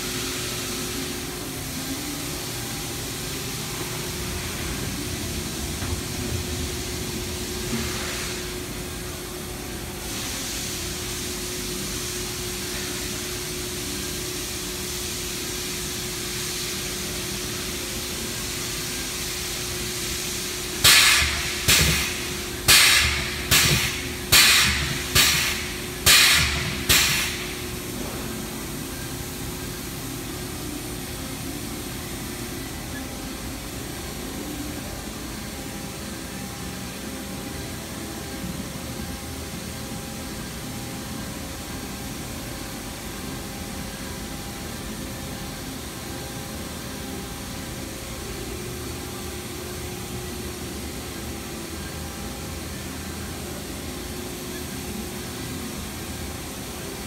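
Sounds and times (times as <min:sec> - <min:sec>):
steady machine hum: 0:00.0 - 0:57.0
sharp bangs with short hiss: 0:20.8 - 0:27.6.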